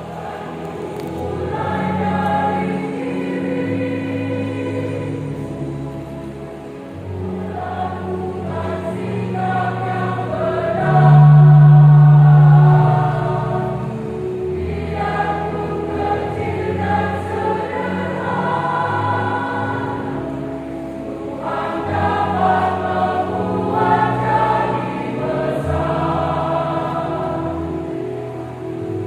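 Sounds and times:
women's choir singing in harmony: 0.0s - 29.0s.

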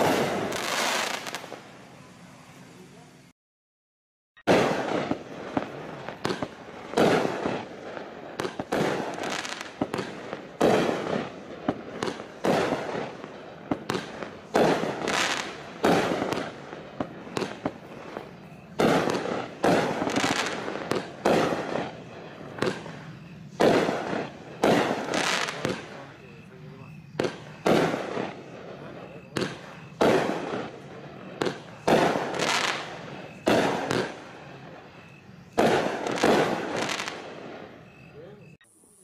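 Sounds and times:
fireworks cake firing shots: 0.0s - 1.7s, 4.4s - 38.6s.

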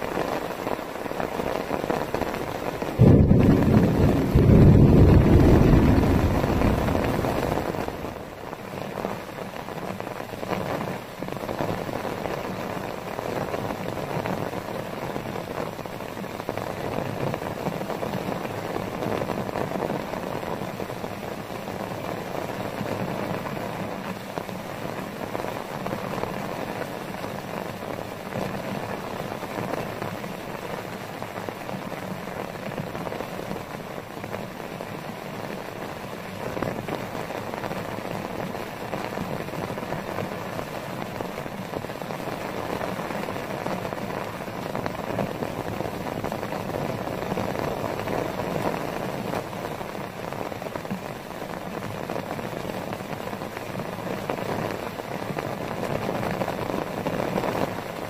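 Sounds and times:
heavy rain on a tarp: 0.0s - 58.0s.

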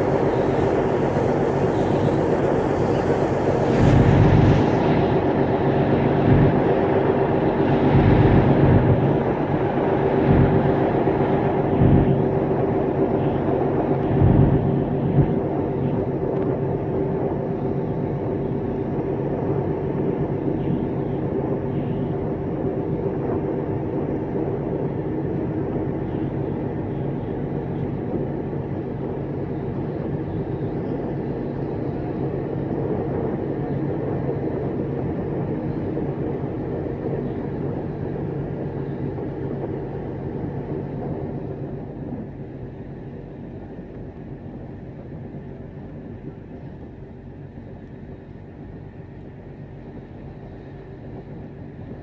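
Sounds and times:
water rushing: 0.0s - 5.9s
ferry engine drone: 0.0s - 52.0s.

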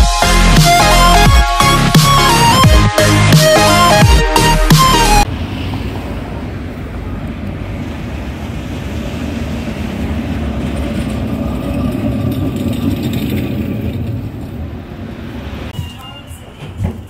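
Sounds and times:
street traffic: 0.0s - 17.0s
tram wheels rumbling on rails: 5.2s - 17.0s.

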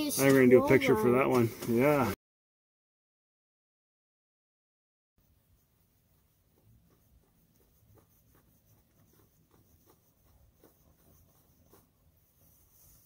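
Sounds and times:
faint scratching and rustling: 5.2s - 13.0s.

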